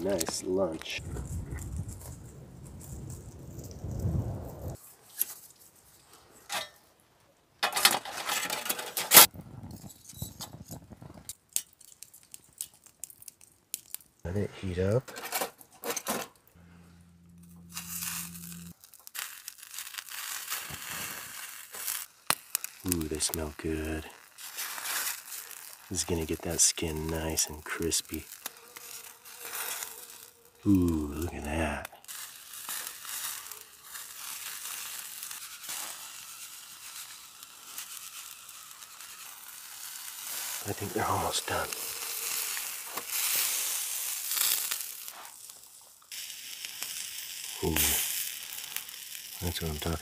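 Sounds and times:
fish sizzling on grill: 0.0 - 6.7, 11.2 - 14.5, 17.3 - 50.0
fire popping: 0.0 - 7.0, 7.7 - 50.0
low hum: 16.6 - 18.8.

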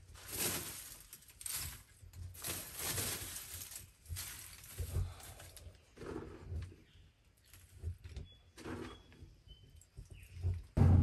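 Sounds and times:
charcoal crunching and clinking: 0.0 - 6.4
soft low thumps: 10.2 - 11.0.

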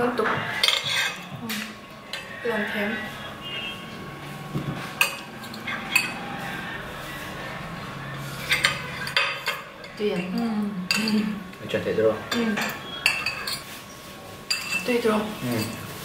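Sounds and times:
forks clinking on glass bowls: 5.0 - 6.3, 8.4 - 11.4, 12.3 - 13.8, 14.5 - 16.0.

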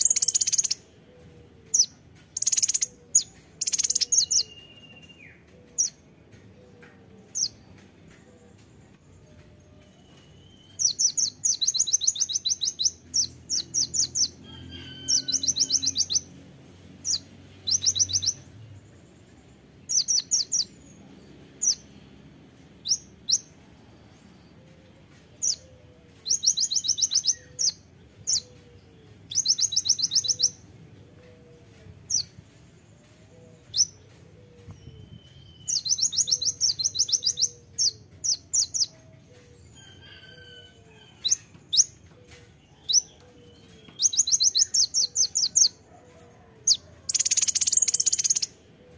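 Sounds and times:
bird singing rapid trills: 0.0 - 0.8, 1.8 - 5.9, 17.0 - 18.4, 47.1 - 48.5.

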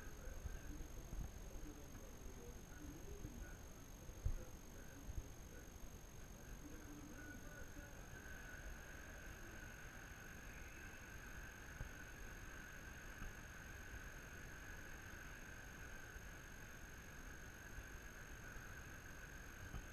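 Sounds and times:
faint room hum: 0.0 - 19.9.

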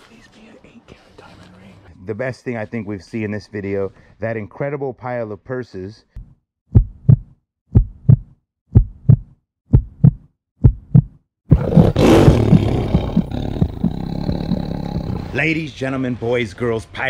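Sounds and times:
heartbeat-like double thumps: 6.2 - 15.4.

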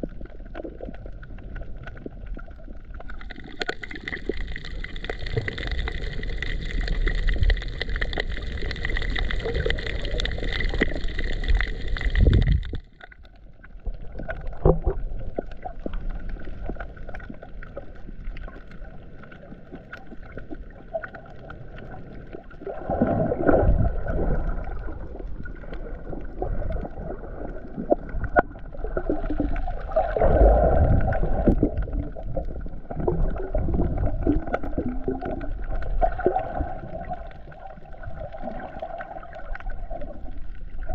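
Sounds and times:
underwater water swirling: 0.0 - 40.9.

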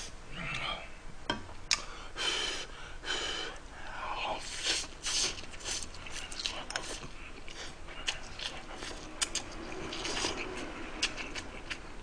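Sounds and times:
chewing: 5.1 - 11.9.

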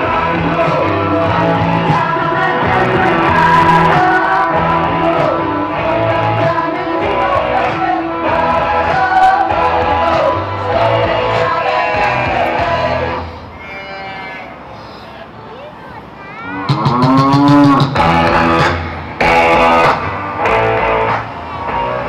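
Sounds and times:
loud rock music: 0.0 - 13.4, 16.7 - 22.0.

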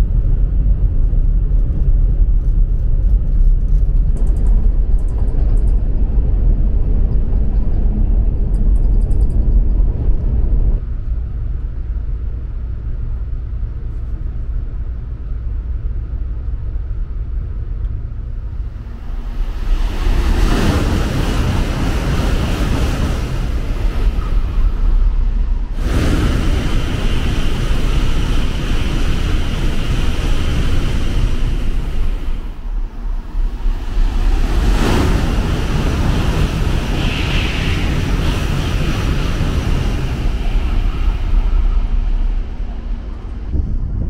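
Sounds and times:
wind buffeting microphone: 0.0 - 44.0
train rushing past: 18.3 - 44.0.

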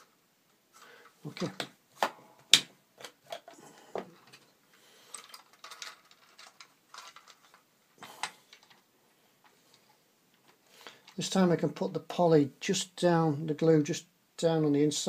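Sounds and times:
plastic parts clicking and rustling: 0.0 - 11.3.

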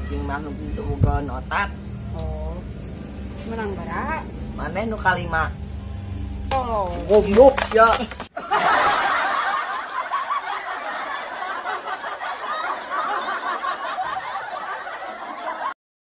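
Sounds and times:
snickering and chuckling laughter: 8.3 - 15.8.

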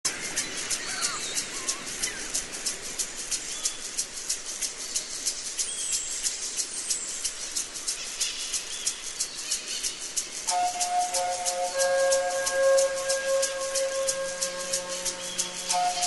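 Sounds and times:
rapid high pulsing insect: 0.1 - 16.0
bird calls: 0.2 - 2.3, 8.0 - 16.0
music: 9.9 - 16.0.

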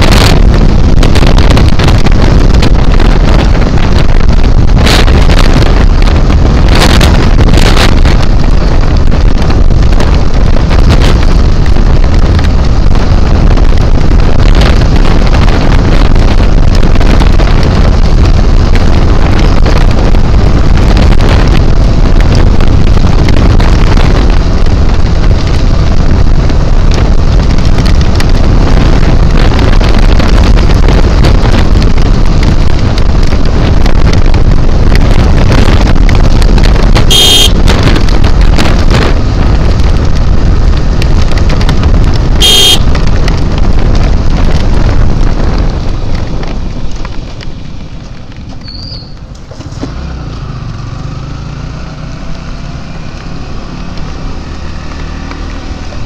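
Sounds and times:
motorcycle engine: 0.0 - 56.0
road noise: 0.0 - 56.0
wind rushing over microphone: 0.0 - 56.0
short high horn beeps: 37.1 - 37.6, 42.4 - 42.8.

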